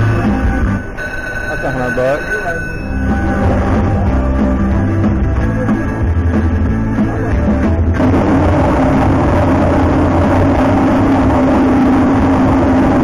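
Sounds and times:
slot machine music with drum beat: 0:00.0 - 0:10.6
rumbling spin sound: 0:06.2 - 0:13.0.

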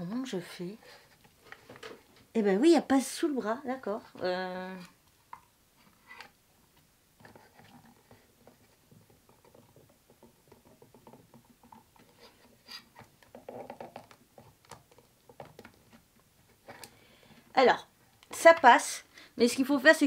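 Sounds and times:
plastic parts clicking and tapping: 0:07.2 - 0:17.0.

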